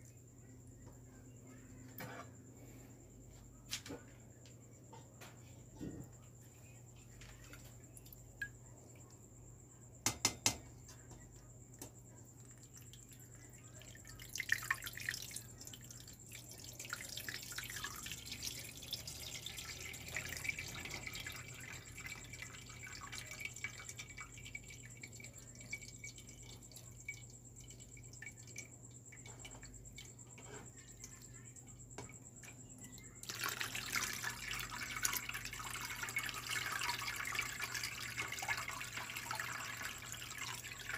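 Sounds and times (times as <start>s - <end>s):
water pouring through strainer: 12.5s - 30.5s, 33.2s - 40.9s.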